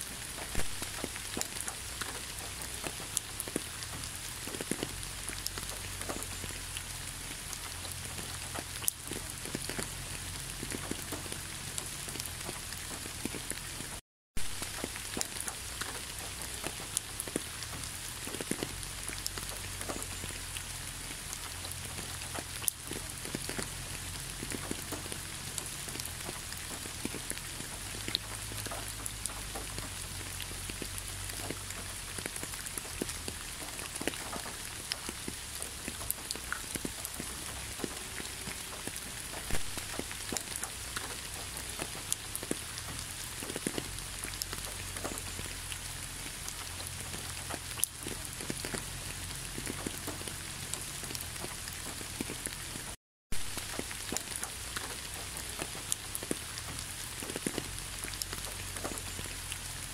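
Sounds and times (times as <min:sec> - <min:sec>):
rain hissing: 0:00.0 - 0:59.9
raindrops ticking: 0:00.0 - 0:59.9.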